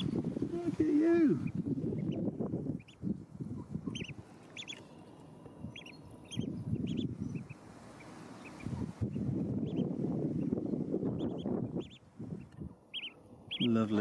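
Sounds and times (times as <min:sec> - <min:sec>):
ducklings peeping: 0:00.0 - 0:14.0.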